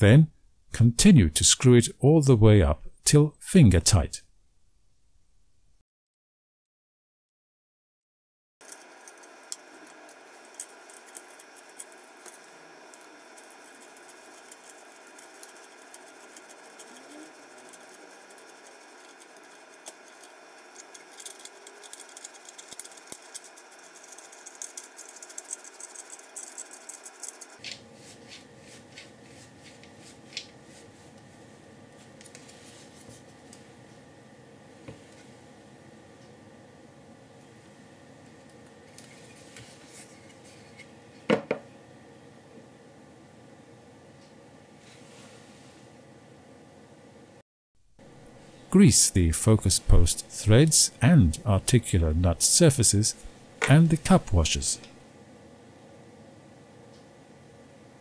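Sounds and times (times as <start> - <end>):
steady low hiss: 48.0 - 55.0.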